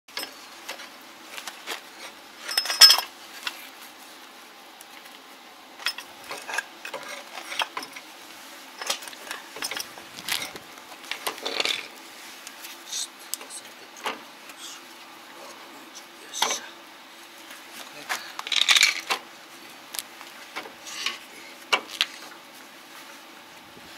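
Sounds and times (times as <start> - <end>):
metallic clinks and clatter: 2.4 - 3.1, 8.8 - 10.6, 11.4 - 11.9, 18.4 - 19.1.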